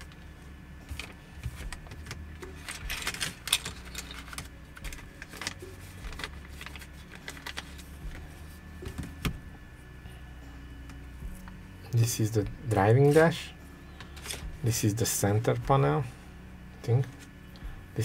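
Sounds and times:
steady low hum: 0.0s - 18.0s
hands handling small parts: 0.9s - 8.2s.

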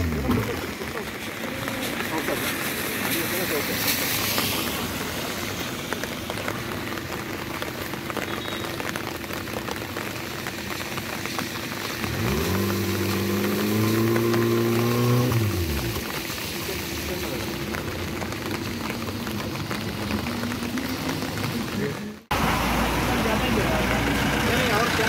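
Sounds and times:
car engine revving: 0.0s - 5.4s, 11.0s - 25.0s
heavy rain: 0.0s - 25.0s.

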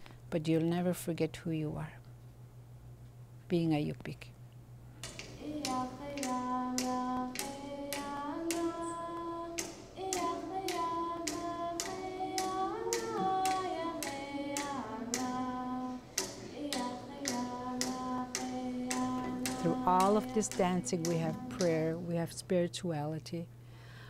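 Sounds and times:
frame drums beating: 5.0s - 22.1s
voices singing long notes: 5.0s - 22.2s.

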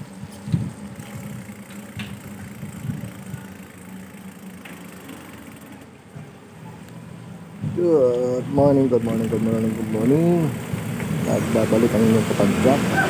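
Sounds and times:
bicycle rolling on wet road: 0.0s - 6.0s, 8.6s - 13.0s.

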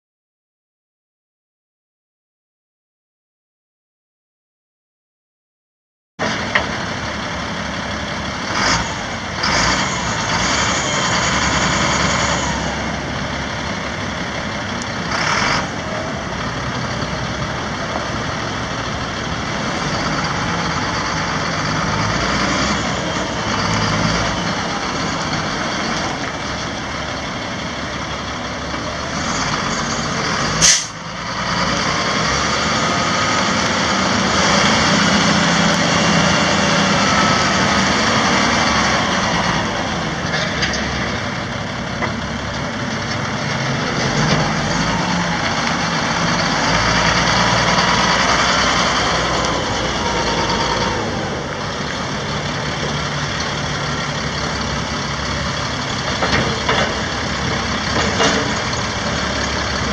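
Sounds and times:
diesel truck engine running: 6.2s - 59.9s
air brake hisses: 30.6s - 31.0s.

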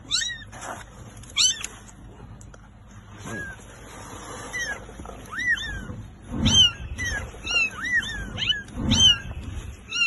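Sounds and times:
kittens mewing: 4.4s - 10.0s.

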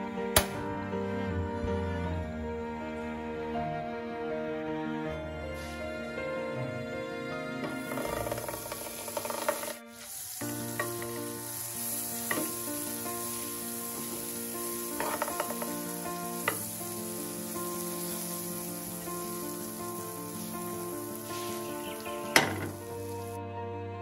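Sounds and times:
butter sizzling in frying pan: 7.6s - 23.4s.

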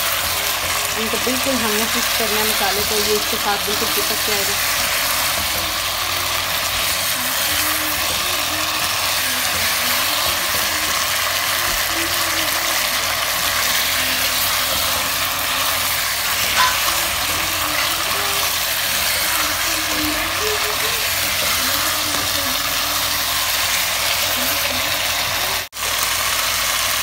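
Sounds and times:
chicken sizzling in oil: 0.0s - 27.0s
wooden spatula scraping pot: 13.4s - 22.8s.

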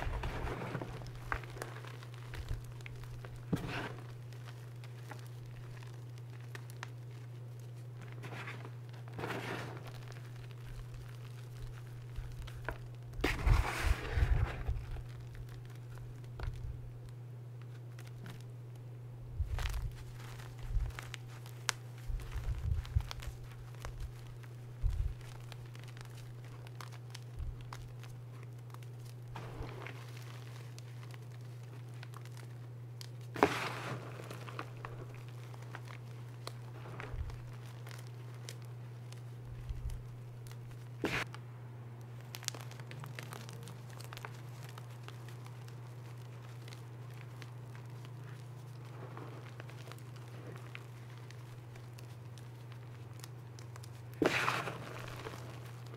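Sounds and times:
chalk crunching and crackling: 0.0s - 41.4s, 42.0s - 55.9s
steady low hum: 0.0s - 55.9s.

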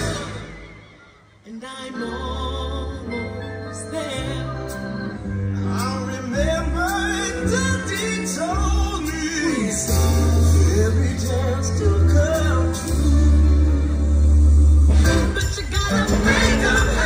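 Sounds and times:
instrumental music with strong bass: 4.1s - 17.0s.

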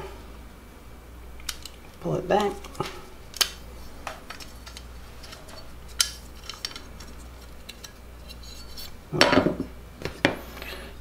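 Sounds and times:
small plastic parts clicking: 1.4s - 8.4s.

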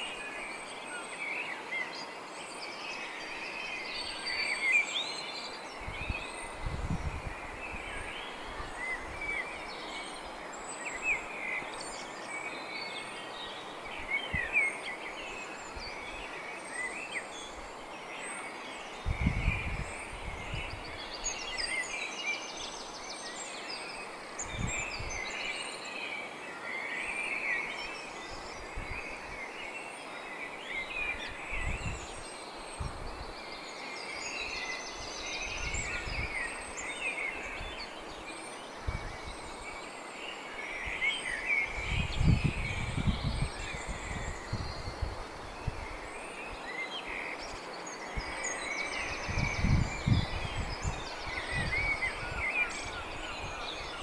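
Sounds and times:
outdoor background noise: 0.0s - 54.0s
small birds chirping: 0.0s - 54.0s.

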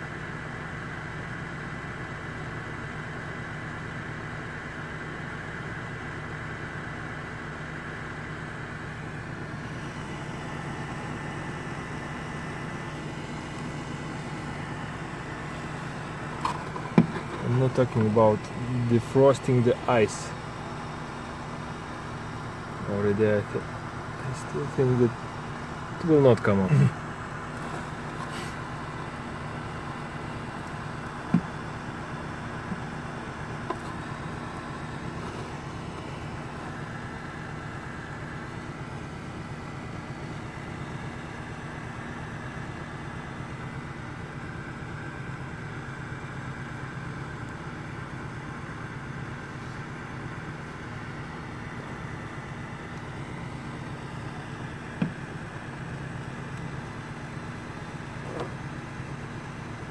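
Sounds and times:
car engine idling: 0.0s - 59.9s
heater fan droning: 0.0s - 59.9s.

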